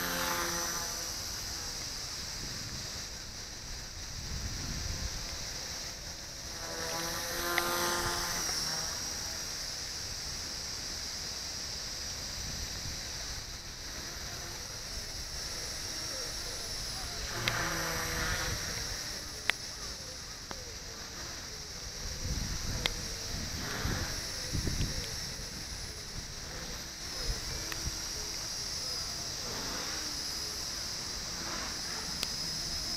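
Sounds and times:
wind noise on microphone: 0.0 - 9.4, 12.0 - 19.9, 21.1 - 28.5
rc helicopter high-pitched whine: 0.0 - 32.9
humming tone: 12.4 - 32.9.

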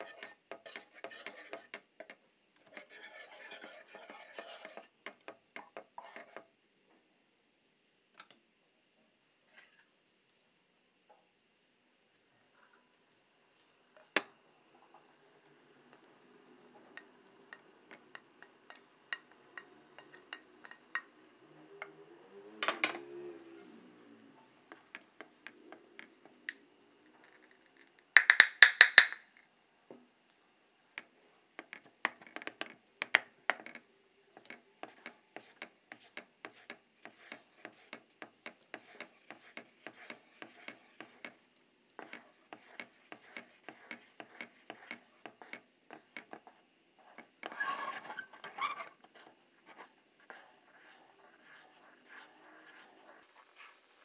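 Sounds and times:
wooden spatula scraping pan: 0.0 - 6.5, 34.4 - 54.0.

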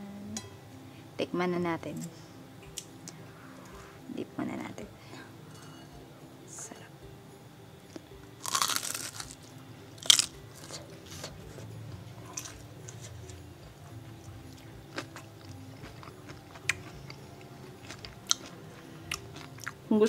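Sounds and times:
crisp food crunching: 7.9 - 11.7, 14.5 - 19.8
chewing: 7.9 - 19.9.

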